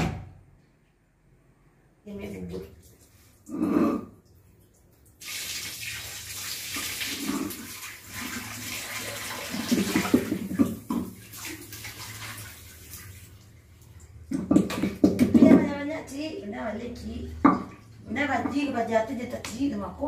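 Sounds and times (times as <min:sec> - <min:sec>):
water running and splashing: 0:04.3 - 0:14.8.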